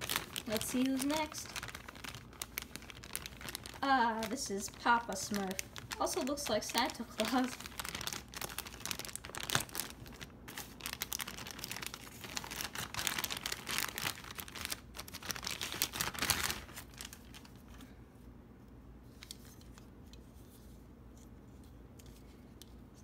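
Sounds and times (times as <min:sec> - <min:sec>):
plastic bag crinkling: 0:00.0 - 0:17.8.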